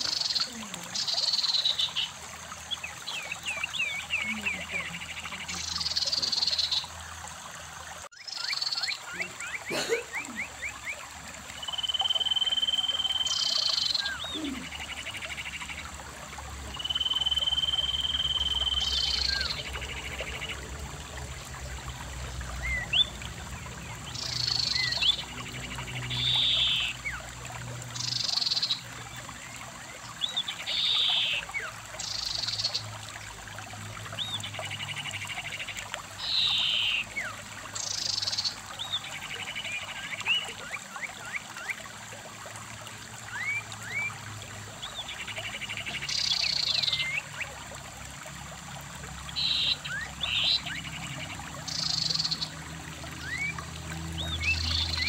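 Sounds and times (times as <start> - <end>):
stream running over rocks: 0.0 - 55.0.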